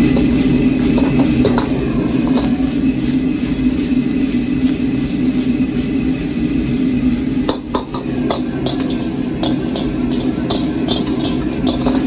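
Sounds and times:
gas wok burner roaring: 0.0s - 12.0s
ladle stirring in a wok: 0.0s - 12.0s
rice frying in a wok: 0.0s - 12.0s.

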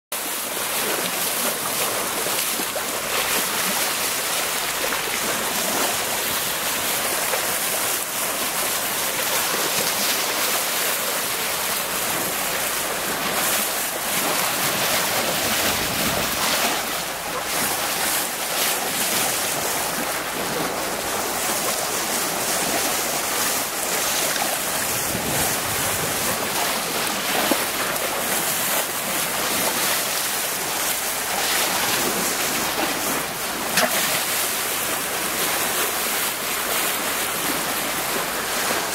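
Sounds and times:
sea water rushing along hull: 0.1s - 38.9s
wind on microphone: 13.1s - 18.3s, 19.2s - 28.2s.

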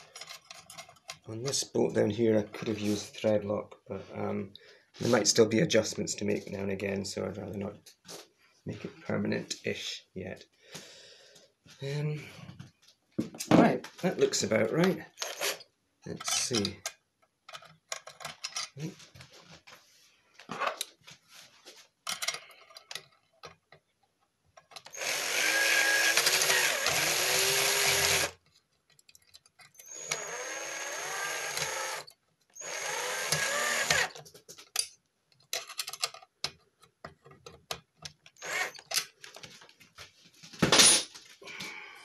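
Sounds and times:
handling clicks and knocks: 0.0s - 1.6s, 16.1s - 19.3s, 22.0s - 24.9s, 28.4s - 29.8s, 34.0s - 41.1s
cordless drill driving bolt: 15.2s - 15.6s, 24.8s - 28.4s, 29.8s - 34.2s, 38.4s - 39.0s.

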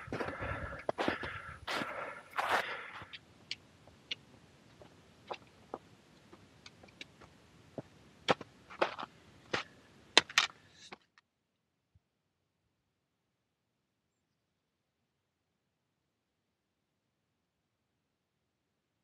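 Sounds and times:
footsteps on rock and snow: 0.0s - 3.2s, 4.7s - 11.0s.

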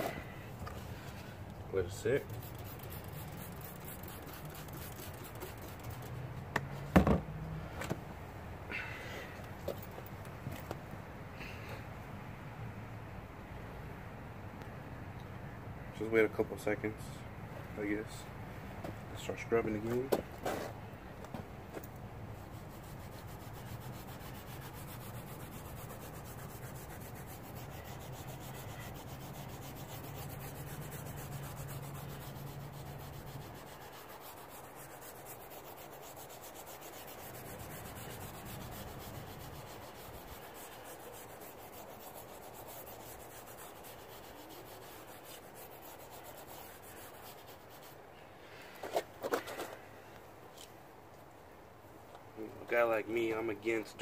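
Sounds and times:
steel wool scrubbing rubber: 1.7s - 6.2s, 22.4s - 48.0s.

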